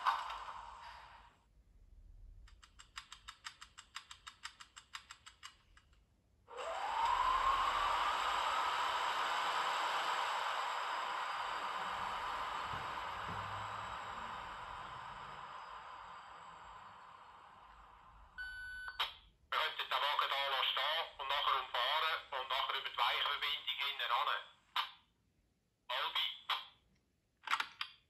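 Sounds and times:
rapid clicks from loudspeaker: 2.5 - 5.9
steady rushing hiss with rising tone: 6.5 - 18.4.

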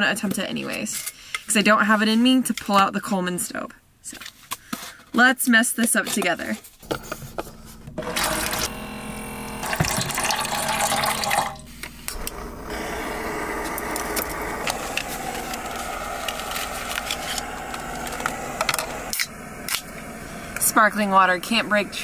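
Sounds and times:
electric pump whirring: 6.8 - 22.0
gas stove burner hissing: 8.2 - 22.0
water pouring: 9.6 - 11.6.

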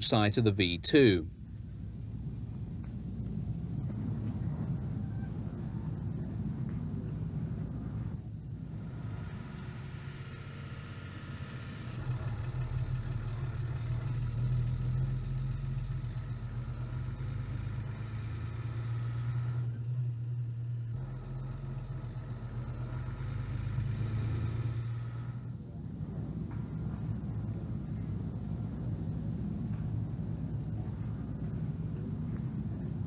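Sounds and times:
engine idling: 0.0 - 25.6.

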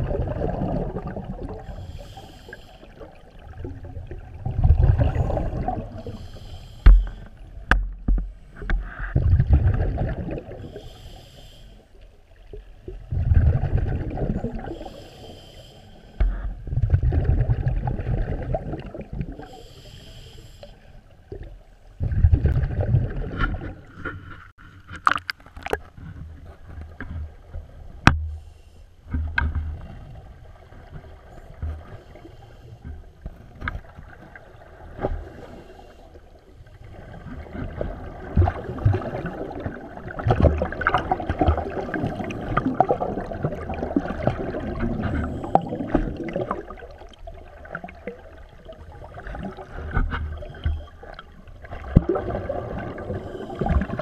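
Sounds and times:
exhaled bubbles gushing: 0.0 - 1.8, 3.0 - 6.2, 9.2 - 10.8, 12.8 - 14.9, 16.7 - 19.6, 22.0 - 23.9, 36.9 - 54.0
regulator inhalation hiss: 1.8 - 2.9, 6.0 - 7.3, 10.7 - 11.9, 14.8 - 16.2, 19.5 - 20.9.

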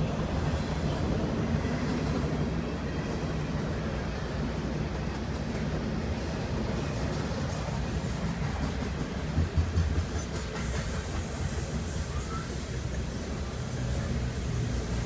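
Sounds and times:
freight train rumbling: 0.0 - 15.0
train wheel clatter: 3.6 - 15.0.

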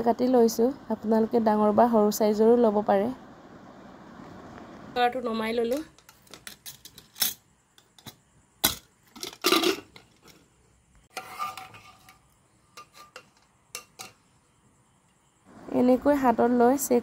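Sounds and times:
metal ladle scraping: 11.1 - 14.2.

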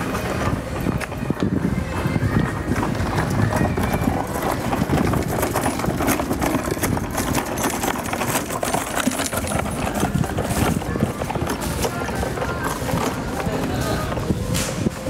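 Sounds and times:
footsteps of people walking: 0.0 - 15.0.

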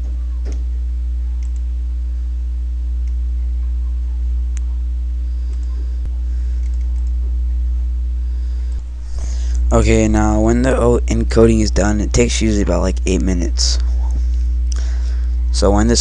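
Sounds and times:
low electrical hum: 0.0 - 16.0
faint clicks: 6.6 - 7.2.

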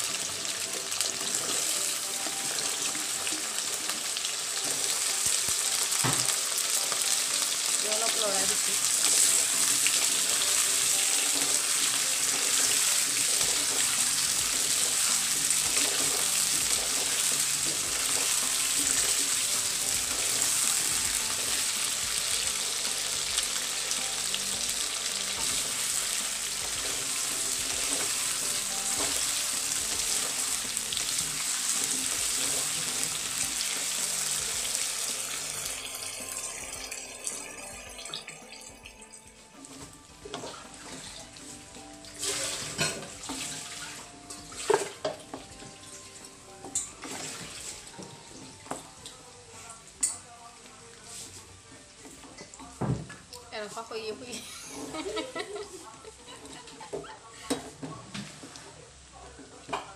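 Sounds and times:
potatoes sizzling in oil: 0.0 - 38.1, 40.6 - 46.0.

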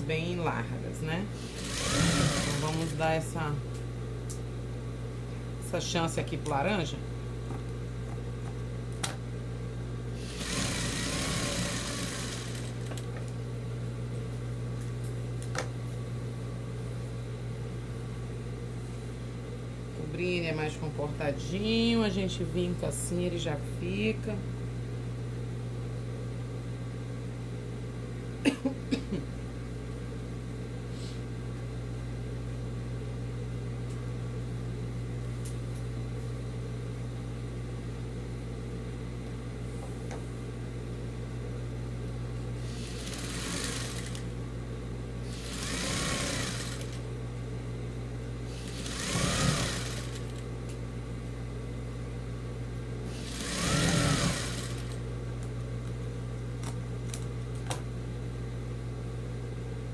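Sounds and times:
motor hum: 1.3 - 5.4, 6.1 - 16.4, 41.5 - 58.8
sewing machine stitching: 1.4 - 3.0, 10.3 - 12.9, 42.7 - 44.3, 45.3 - 47.0, 48.6 - 50.4, 53.1 - 55.0.

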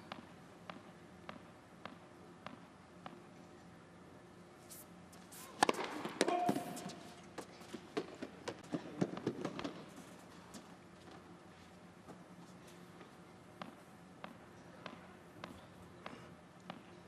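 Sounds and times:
racquet hitting tennis ball: 5.5 - 7.1.

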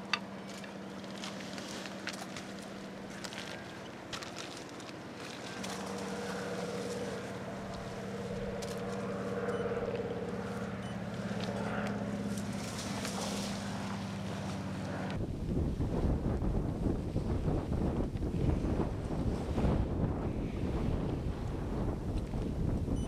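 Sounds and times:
distant engine drone: 0.0 - 23.0
wind buffeting microphone: 5.0 - 23.0.

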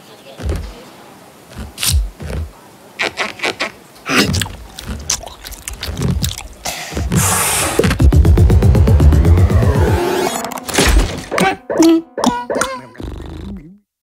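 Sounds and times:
hissing rush: 4.1 - 10.3
cartoon clicks and pops: 10.4 - 13.6.

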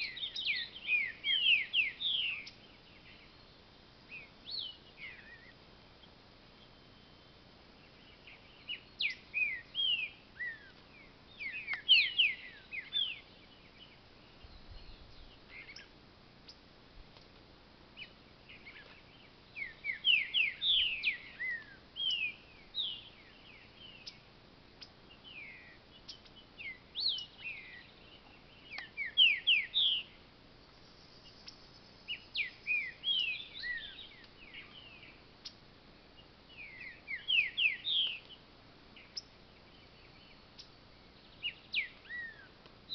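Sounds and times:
bird whistling song: 0.0 - 3.5, 4.1 - 5.6, 8.0 - 15.9, 18.0 - 24.2, 25.2 - 30.2, 31.2 - 35.6, 36.5 - 38.4, 41.4 - 42.9.

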